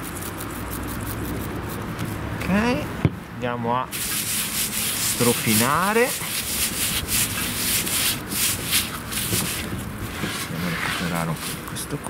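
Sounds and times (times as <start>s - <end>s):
gloved hands scrubbing meat: 3.9s - 9.7s.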